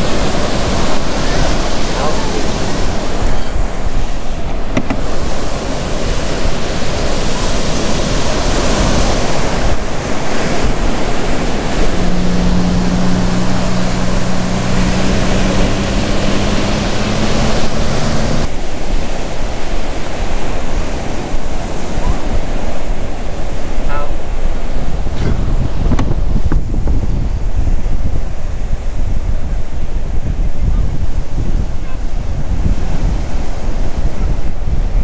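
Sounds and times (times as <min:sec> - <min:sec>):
surf: 0:00.0 - 0:35.0
wind buffeting microphone: 0:00.0 - 0:35.0
steady low hum: 0:10.1 - 0:18.5.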